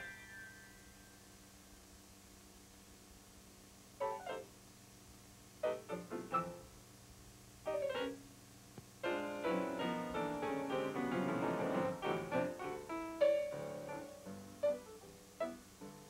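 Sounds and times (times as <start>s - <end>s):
piano music: 0.0s - 1.1s, 5.6s - 6.7s, 9.0s - 16.0s.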